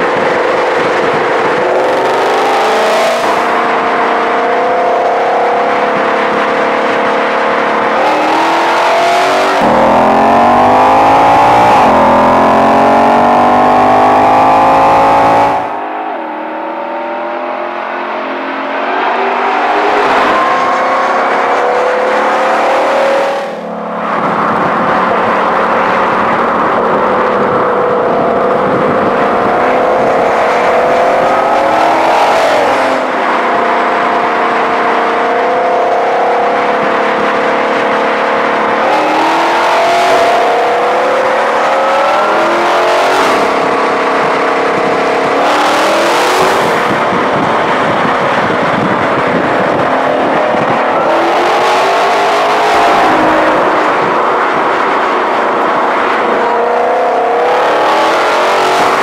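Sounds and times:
car engine accelerating hard: 0.0 - 59.0.

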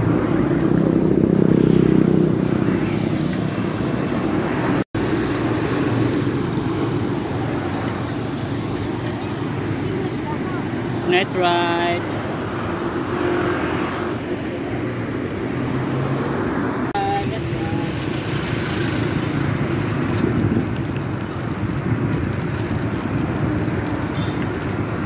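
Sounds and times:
bicycle road noise: 0.0 - 25.0
traffic: 0.0 - 25.0.

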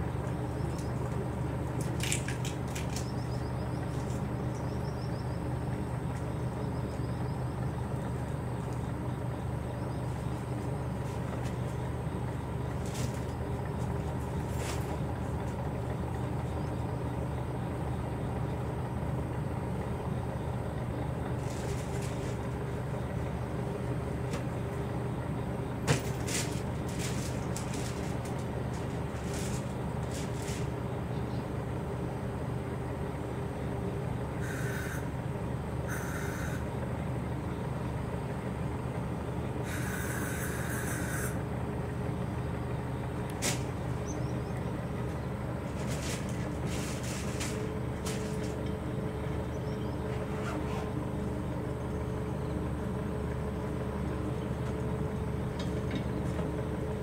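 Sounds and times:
low mechanical hum: 0.0 - 57.0.

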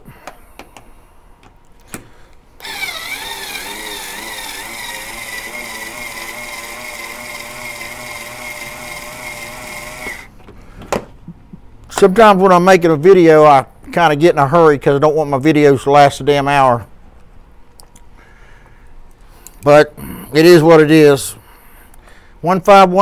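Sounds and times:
cutter trimming brass case: 2.6 - 10.3
power driver motor whine: 2.6 - 10.3.

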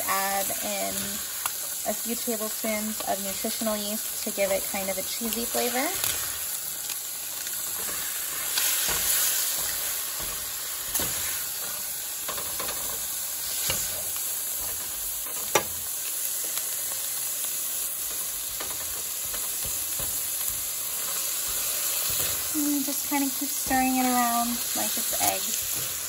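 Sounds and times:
food sizzling in a skillet: 0.0 - 26.0
spatula scraping pan: 7.6 - 15.8.

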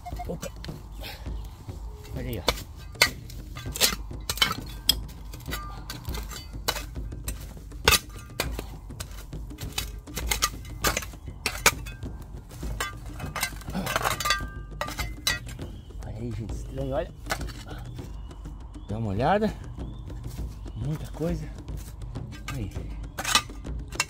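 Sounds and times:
metal digging tool striking soil: 1.9 - 17.9, 19.9 - 24.0
blade clinking on glass and stones: 2.0 - 15.8, 17.2 - 17.9, 22.2 - 24.0.

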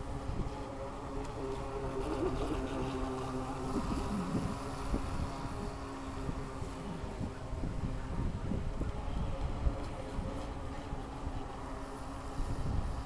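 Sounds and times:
electric motor whining: 0.4 - 7.9.

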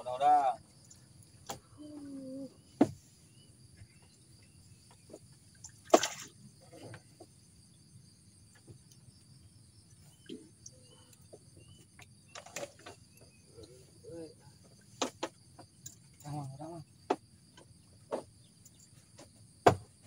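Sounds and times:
insects chirring: 0.0 - 20.0
fishing rig splashing into water: 5.6 - 6.4.

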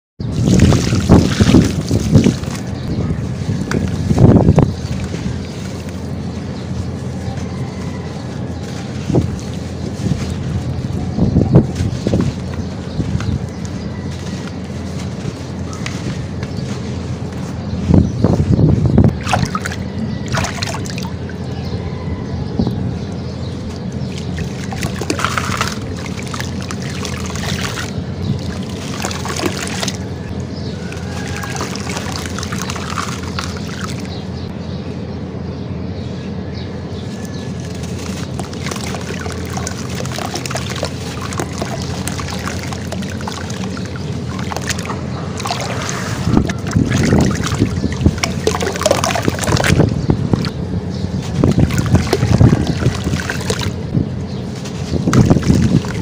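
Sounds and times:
water sloshing and splashing: 0.2 - 7.5, 19.0 - 21.8, 23.4 - 34.3, 37.6 - 56.0
hands squeezing wet sand mix: 0.2 - 21.7, 23.1 - 34.3, 37.2 - 56.0
steady low hum: 0.2 - 56.0.

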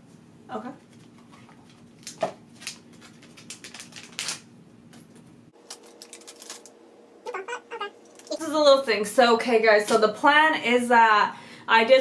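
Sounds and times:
plastic wrapper crinkling and tearing: 1.0 - 4.5, 5.6 - 6.7.

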